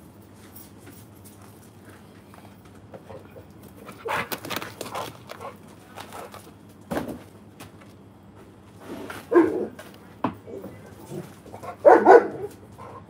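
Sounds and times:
dog scuffling on concrete: 0:00.2 - 0:06.9, 0:07.6 - 0:13.0
dog barking: 0:09.3 - 0:09.8, 0:11.6 - 0:12.6.

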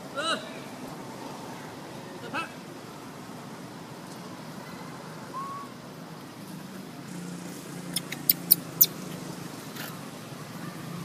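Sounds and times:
sharp high-pitched chirps: 0:07.8 - 0:09.0.

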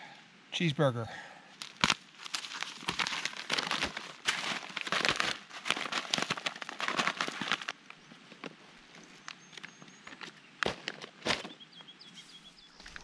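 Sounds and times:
plastic packaging crinkling: 0:01.6 - 0:07.8.

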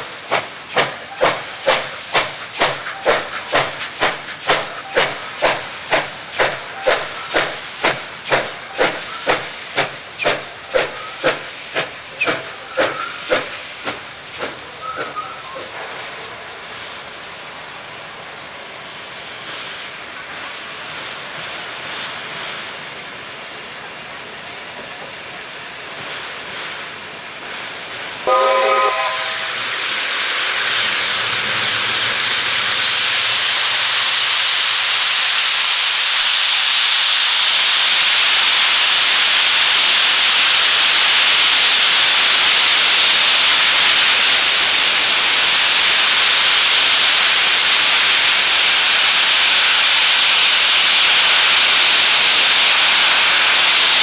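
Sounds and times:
steam hiss: 0:00.0 - 0:54.0
steam locomotive exhaust beats: 0:00.0 - 0:54.0
locomotive whistle toot: 0:28.2 - 0:29.6.

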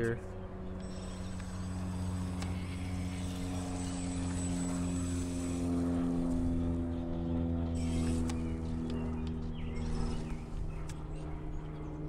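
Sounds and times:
engine drone: 0:00.0 - 0:12.0
faint high whine: 0:00.0 - 0:12.0.

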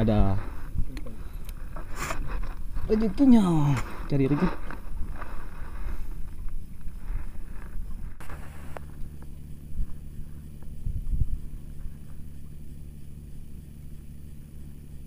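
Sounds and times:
boat motor humming: 0:00.0 - 0:15.0
wind on microphone: 0:10.8 - 0:11.9.

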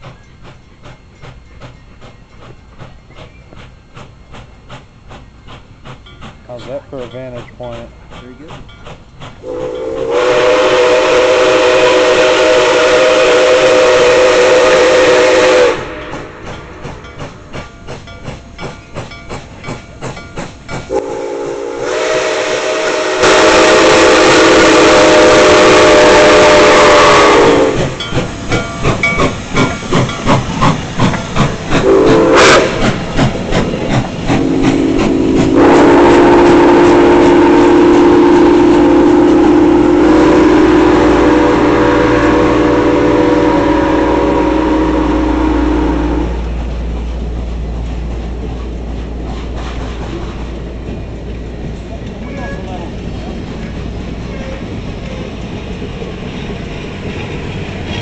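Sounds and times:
hiss of steam: 0:00.0 - 0:46.7
locomotive exhaust chuffs: 0:00.0 - 0:58.0
steam locomotive chime whistle: 0:09.4 - 0:30.4, 0:31.3 - 0:32.9, 0:34.3 - 0:46.6, 0:52.2 - 0:52.9, 0:54.2 - 0:55.4.

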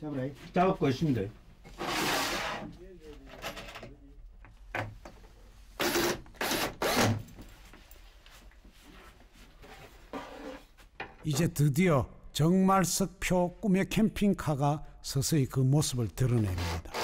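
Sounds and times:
power drill driving screws: 0:05.8 - 0:07.2, 0:16.5 - 0:17.0.

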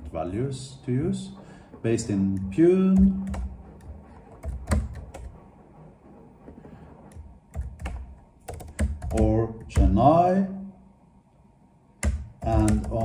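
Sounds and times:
typing on computer keyboard: 0:03.0 - 0:05.3, 0:07.1 - 0:09.9, 0:12.0 - 0:13.0.

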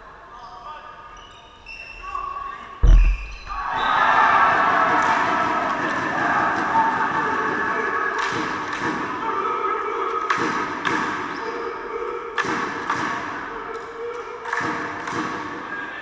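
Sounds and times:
players' voices: 0:00.0 - 0:16.0
ball bouncing on hall floor: 0:02.8 - 0:03.7.

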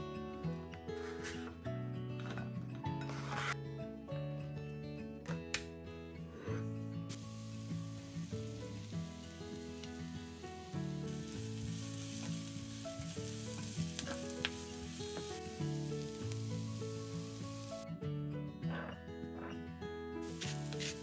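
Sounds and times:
gentle background music: 0:00.0 - 0:21.0
vegetables sizzling in a frying pan: 0:07.1 - 0:17.8, 0:20.2 - 0:21.0.

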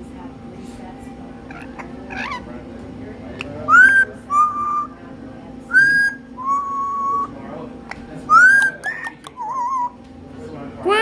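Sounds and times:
soft parrot chirps: 0:01.5 - 0:02.4, 0:03.4 - 0:04.9, 0:05.7 - 0:07.3, 0:08.3 - 0:10.0.

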